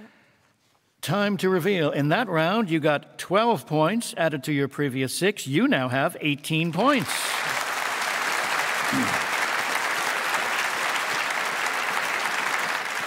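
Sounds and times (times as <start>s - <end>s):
audience applauding: 6.7s - 13.0s
person speaking: 8.9s - 9.2s.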